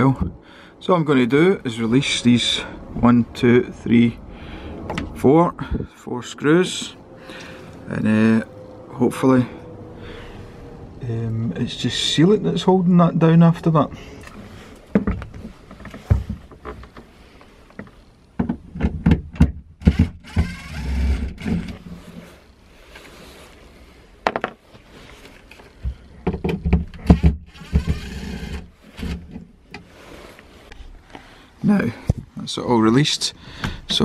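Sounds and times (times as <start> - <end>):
handling knocks and clicks: 14.2 - 19.6
cordless drill backing out screws: 19.8 - 21.9, 26.9 - 29.4.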